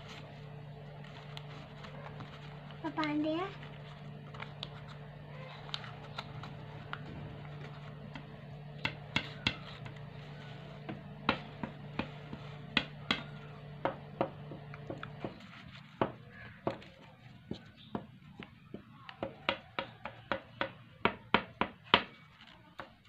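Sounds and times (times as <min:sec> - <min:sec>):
stiff paper crackling: 0:00.0 - 0:13.8, 0:22.1 - 0:23.0
low hum: 0:00.0 - 0:16.4.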